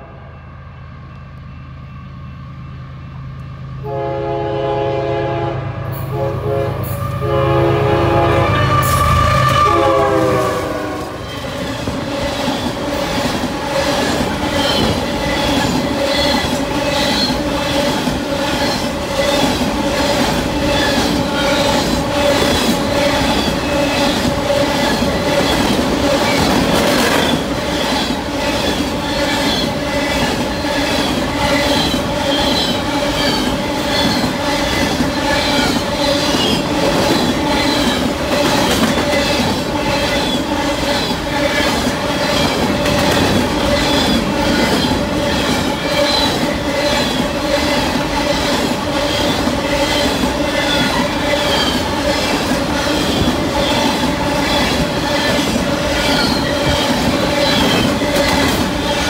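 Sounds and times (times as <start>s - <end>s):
locomotive horn: 3.8s - 11.3s
squealing ring from wheels: 27.9s - 36.6s, 49.0s - 52.3s, 52.9s - 57.8s.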